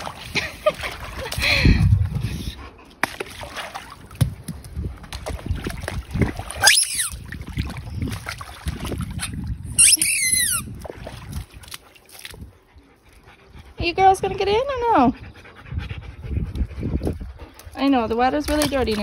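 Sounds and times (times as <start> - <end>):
water sloshing and splashing: 0.0 - 13.8, 16.4 - 19.0.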